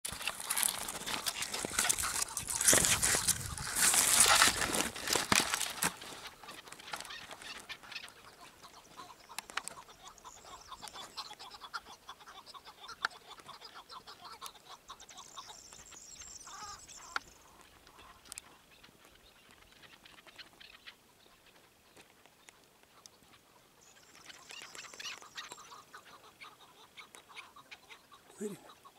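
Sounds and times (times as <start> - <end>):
rustling noise: 0.0 - 9.9
partridge clucking calls: 0.1 - 28.9.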